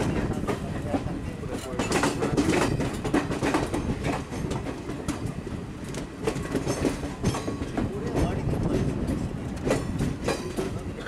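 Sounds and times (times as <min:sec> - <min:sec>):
train coach rumbling: 0:00.0 - 0:11.0
wheels clattering over rail joints: 0:00.0 - 0:11.0.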